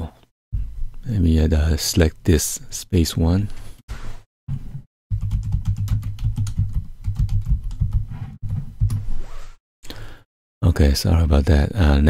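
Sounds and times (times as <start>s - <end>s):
keyboard typing: 5.2s - 9.0s.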